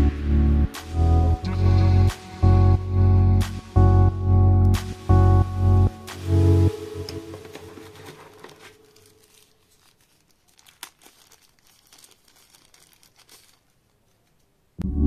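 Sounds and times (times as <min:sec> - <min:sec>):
paper wrapping crinkling: 0:06.7 - 0:14.6.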